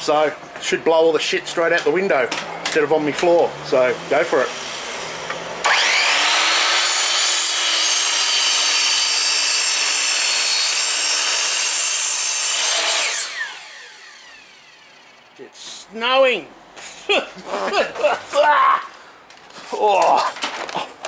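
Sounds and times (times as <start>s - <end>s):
mitre saw cutting wood: 3.4s - 15.4s.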